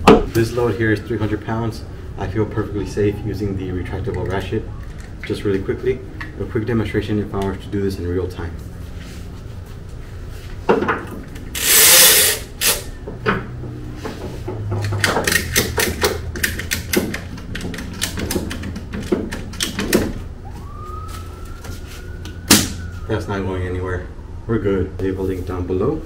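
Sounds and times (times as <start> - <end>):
ratchet lever clicking: 11.5 - 12.9, 14.8 - 20.0
strap webbing zipping out: 11.5 - 12.9
hooks clacking: 14.7 - 20.2
rising tone: 20.4 - 24.7.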